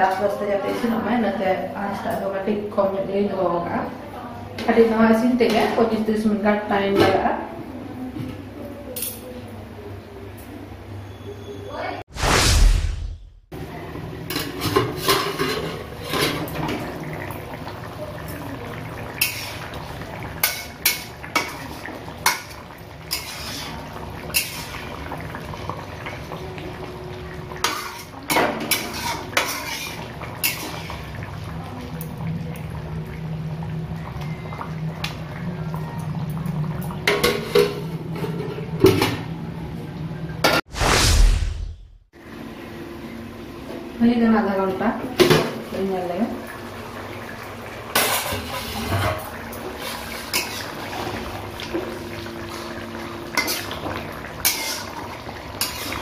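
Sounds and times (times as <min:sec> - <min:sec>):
low hum: 0:12.2 - 0:13.5, 0:40.7 - 0:42.1
metal spatula scraping pot: 0:27.7 - 0:30.9, 0:54.4 - 0:55.0.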